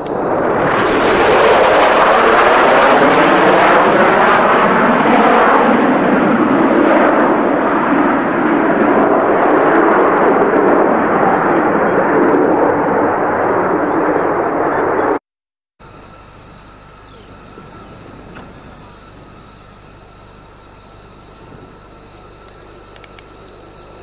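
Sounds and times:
jet bomber engines roaring: 0.0 - 15.2, 15.8 - 24.0.

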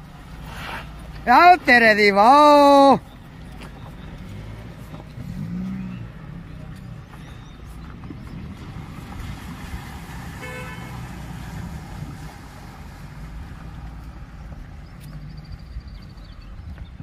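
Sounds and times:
water splashing at wheels: 0.0 - 17.0
car horn toot: 10.4 - 11.0.

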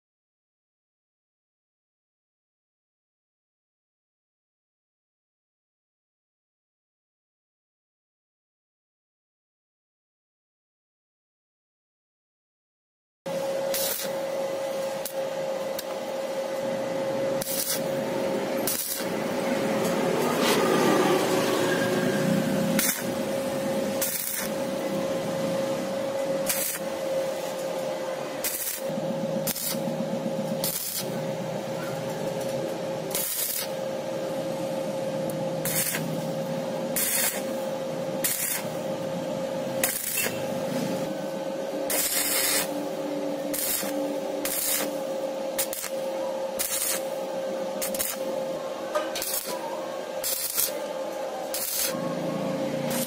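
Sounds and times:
steady hum: 13.3 - 53.0
welding arc crackling and hissing: 13.3 - 53.0.

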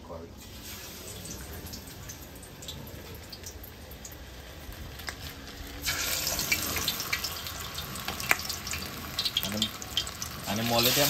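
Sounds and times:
crackling sizzle: 0.0 - 11.0
fish frying in hot oil: 0.4 - 11.0.

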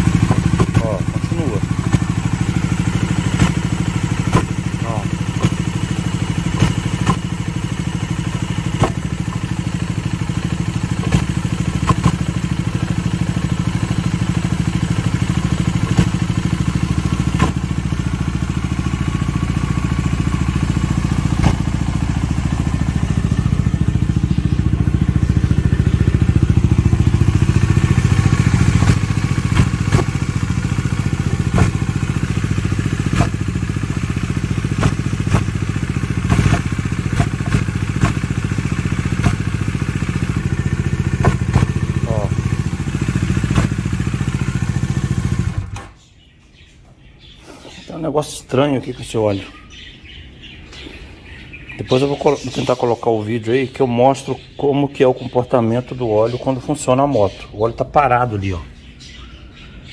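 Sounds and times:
engine knocking: 0.0 - 45.8
motorcycle engine idling: 0.0 - 47.9, 48.5 - 59.9.

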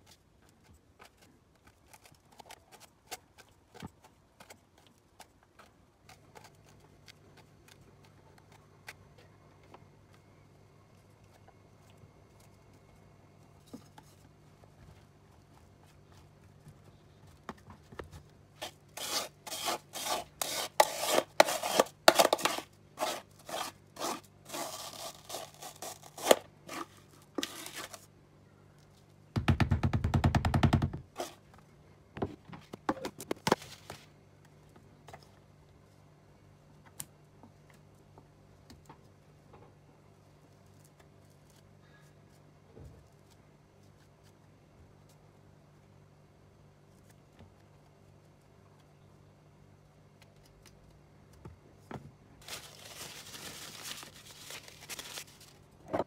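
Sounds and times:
metal spoon scraping tray: 18.6 - 28.0.

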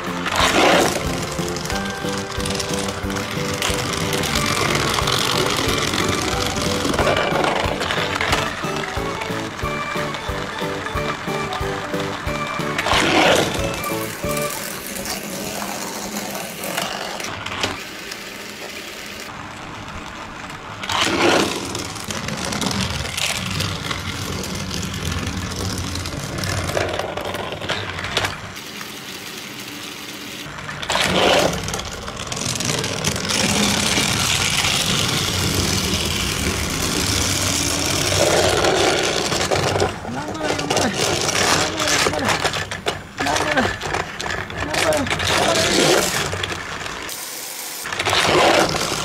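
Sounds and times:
toy electric motor whirring: 0.0 - 49.0.

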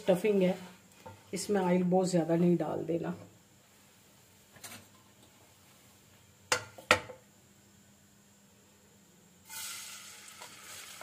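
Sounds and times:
hot oil sizzling: 9.4 - 11.0.

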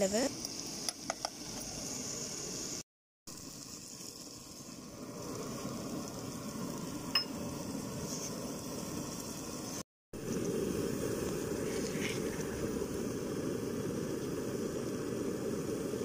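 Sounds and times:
onion masala sizzling: 0.0 - 16.0.

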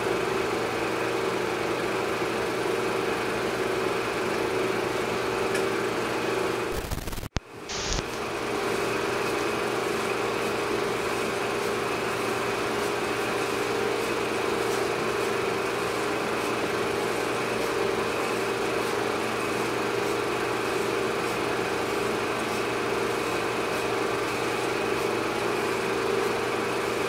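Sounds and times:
machine drone with hum and tone: 3.2 - 27.0
steady hiss: 6.7 - 8.0.

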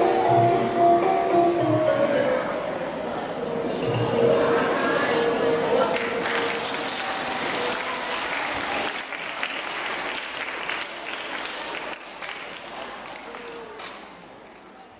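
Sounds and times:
audience applauding: 5.8 - 14.9.

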